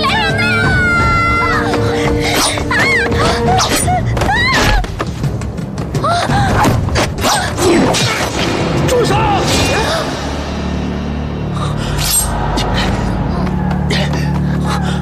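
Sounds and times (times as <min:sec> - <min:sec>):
dramatic background music: 0:00.0 - 0:15.0.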